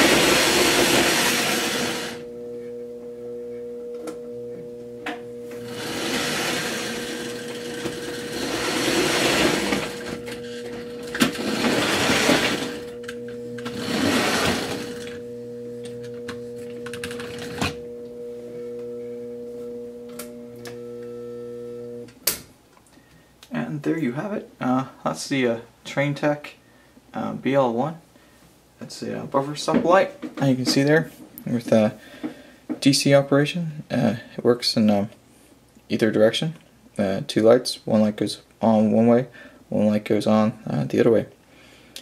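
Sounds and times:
electrical hum: 0.0s - 34.3s
model train motor whirring: 5.7s - 13.0s.

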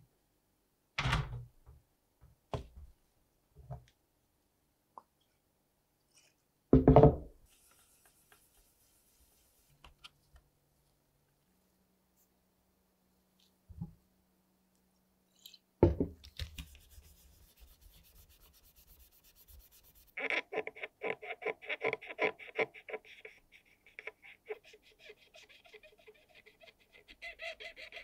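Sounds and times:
cotton swab scrubbing plastic grooves: 16.2s - 28.0s.

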